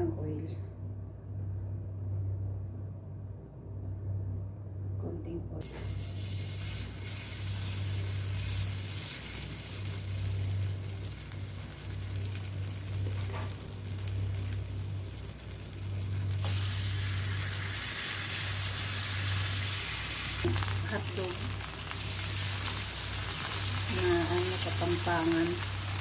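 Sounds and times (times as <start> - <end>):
low hum: 0.0 - 26.0
batter sizzling in hot oil: 5.7 - 26.0.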